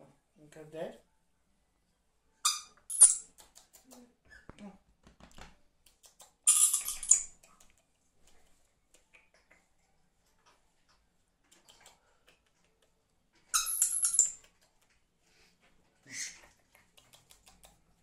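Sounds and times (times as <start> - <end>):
parrot shrill squeaky calls: 2.4 - 3.2, 6.5 - 7.3, 13.5 - 14.3
soft clicks and rustles: 3.4 - 5.6.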